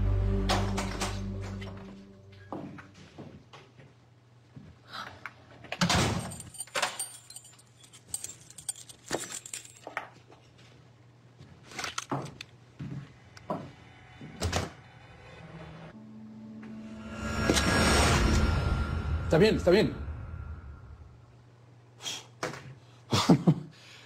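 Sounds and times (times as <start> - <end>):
door opening and shutting: 0.4 - 1.9
keys unlocking door: 5.8 - 10.0.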